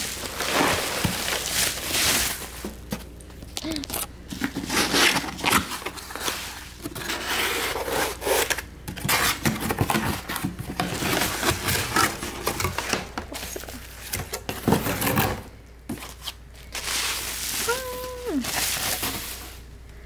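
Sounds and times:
bubble wrap rustling: 0.0s - 8.5s, 15.9s - 19.8s
cardboard scraping and rubbing: 4.4s - 13.6s.

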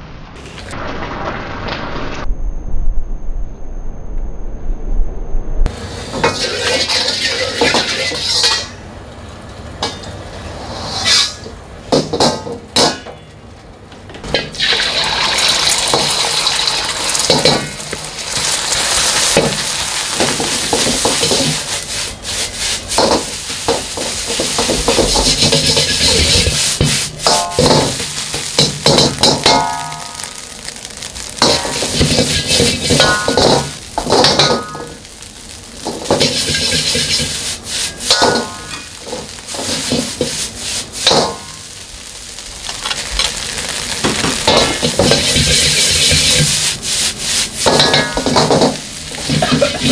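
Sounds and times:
metal ladle scraping wok: 5.7s - 8.8s, 9.8s - 11.6s, 15.8s - 30.4s, 31.1s - 41.6s, 42.7s - 49.9s
rice sizzling in oil: 5.7s - 13.3s, 14.3s - 49.9s
ladle clanking on wok: 6.0s - 8.8s, 14.2s - 18.6s, 22.9s - 30.3s, 31.4s - 35.0s, 35.8s - 41.5s, 47.6s - 49.9s.

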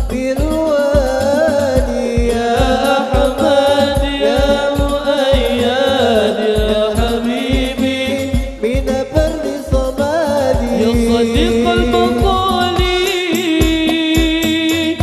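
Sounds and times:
hand drums: 0.0s - 15.0s
person singing ornamented melody: 0.1s - 15.0s
low drum hits: 6.6s - 13.9s.

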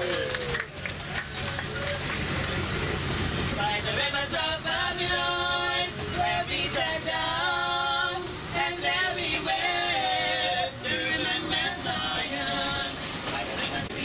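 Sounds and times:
women singing a cappella: 3.6s - 14.0s.

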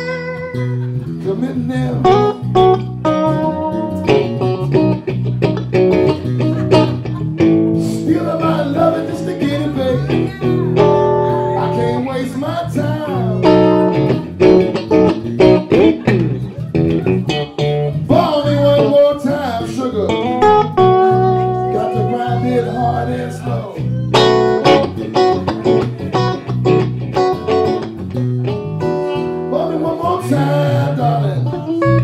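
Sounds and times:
electric bass playing: 0.0s - 32.0s
electric guitar lead with bent notes: 0.0s - 32.0s.

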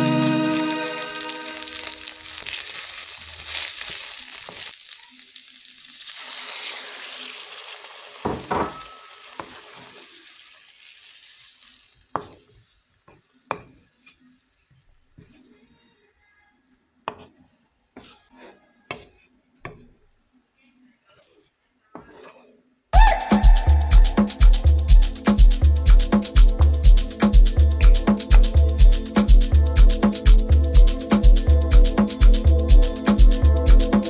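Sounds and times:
chicken sizzling in a pan: 0.0s - 25.3s
water poured into hot pan: 0.1s - 12.9s
wooden spoon stirring: 12.1s - 22.8s.

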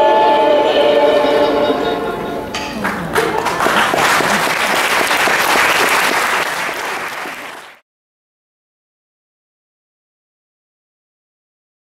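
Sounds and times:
audience applauding: 2.8s - 7.8s.

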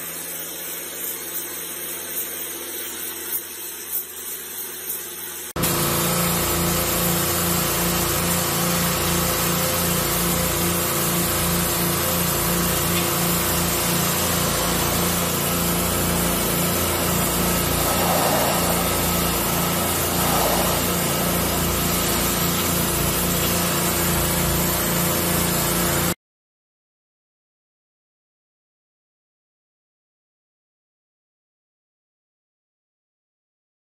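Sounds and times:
pressure washer engine: 5.6s - 26.2s
water jet hissing on concrete: 5.6s - 26.2s.

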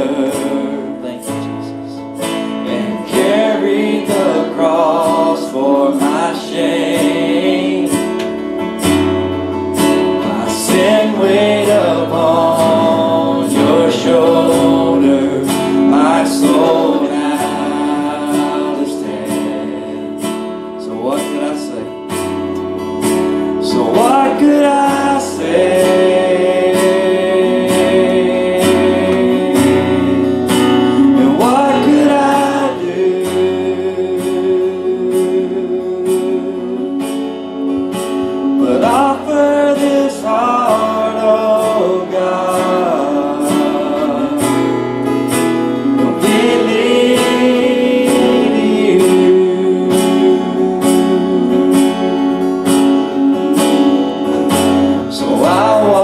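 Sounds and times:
voices singing: 0.0s - 22.3s, 23.0s - 56.0s
worship band playing guitars: 0.0s - 56.0s.

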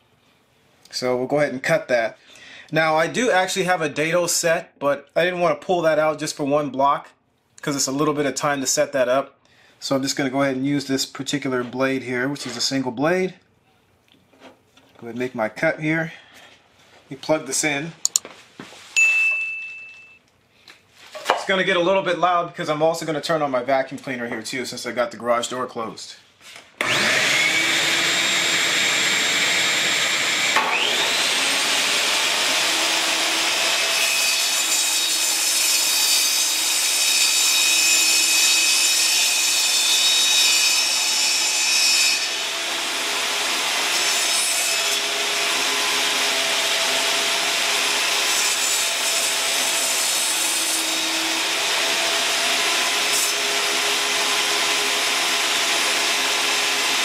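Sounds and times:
vacuum cleaner running: 26.8s - 33.6s, 51.3s - 57.0s
saw cutting wood: 26.8s - 57.0s
table saw running: 26.8s - 57.0s.

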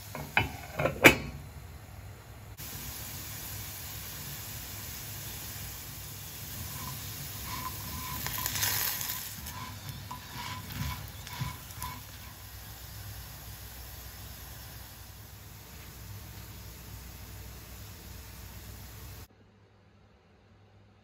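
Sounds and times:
potatoes sizzling in oil: 0.0s - 0.8s, 2.6s - 19.3s
spatula scraping a pan: 6.3s - 12.8s.

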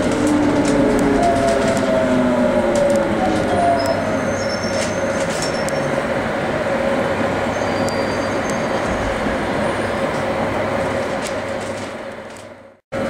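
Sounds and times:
train rumbling: 0.0s - 13.0s
train whine: 0.0s - 13.0s.

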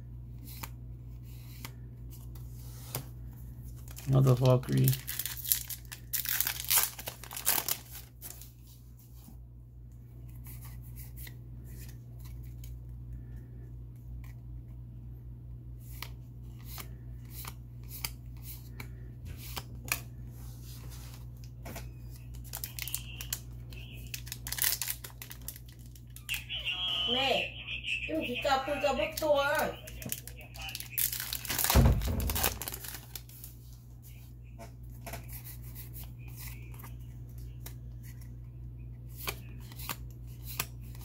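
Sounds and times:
cards flipped through by hand: 0.4s - 3.1s, 15.8s - 20.1s, 20.7s - 26.2s, 39.1s - 41.0s
foil pack crinkling and tearing: 3.8s - 8.5s, 22.2s - 26.2s, 29.9s - 33.6s.

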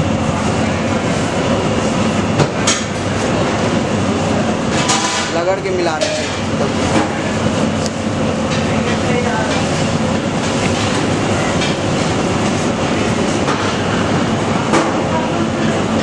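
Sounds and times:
steady rumbling roar: 0.0s - 16.0s.

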